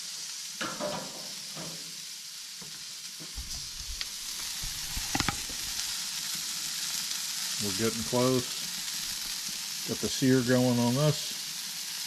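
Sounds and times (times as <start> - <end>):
steak sizzling: 0.0 - 12.0
handling knocks and clicks: 3.4 - 5.7.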